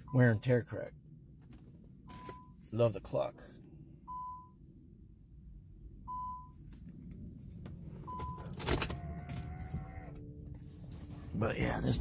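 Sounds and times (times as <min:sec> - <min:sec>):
car warning chime beeping: 0:00.0 - 0:00.8, 0:02.0 - 0:02.6, 0:04.0 - 0:04.7, 0:06.0 - 0:06.7, 0:08.0 - 0:12.0.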